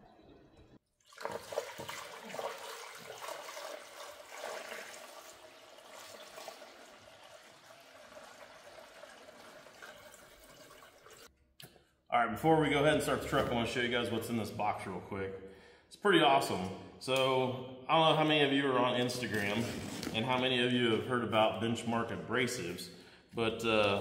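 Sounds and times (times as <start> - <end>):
water pouring into radiator: 1.0 - 11.3.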